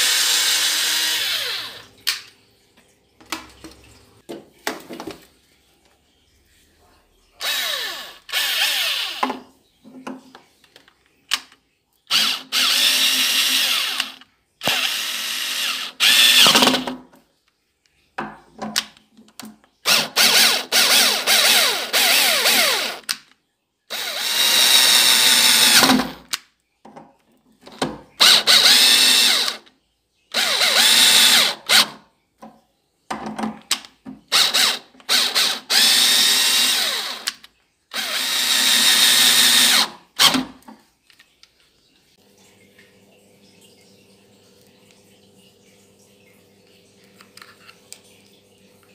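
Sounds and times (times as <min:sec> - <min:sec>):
cordless drill whining: 0:00.0 - 0:01.8, 0:07.4 - 0:09.3, 0:12.1 - 0:16.9, 0:19.8 - 0:23.1, 0:23.9 - 0:26.2, 0:28.2 - 0:29.6, 0:30.3 - 0:31.9, 0:34.3 - 0:40.4.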